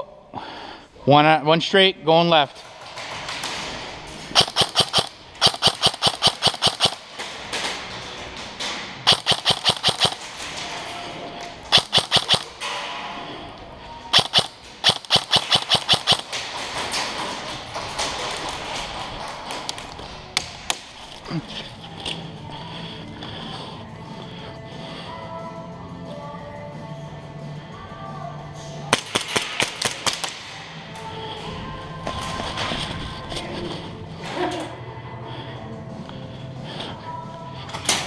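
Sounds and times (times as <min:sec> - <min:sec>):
airsoft rifle rapid bursts: 0:04.4 - 0:07.1, 0:09.1 - 0:10.2, 0:11.7 - 0:12.6, 0:14.1 - 0:16.3
shuffling movement: 0:31.0 - 0:34.8.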